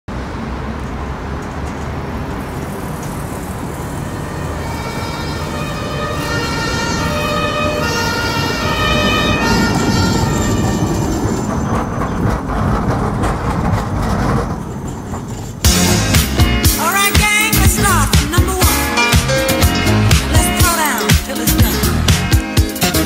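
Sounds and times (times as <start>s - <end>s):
city traffic rumble: 0.0s - 23.0s
two-tone siren: 4.0s - 11.5s.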